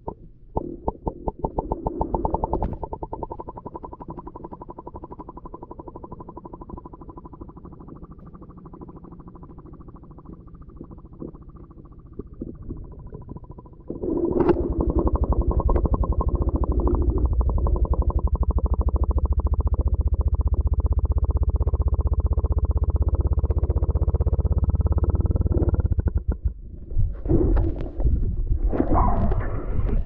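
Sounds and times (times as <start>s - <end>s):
pulsing hum underwater: 0.0s - 30.0s
water noises: 1.9s - 24.4s.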